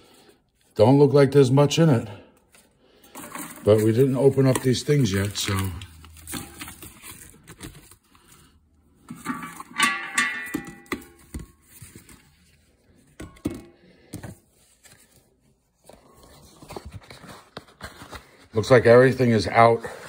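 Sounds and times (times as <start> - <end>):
plastic bags crinkling: 3.0 - 8.6.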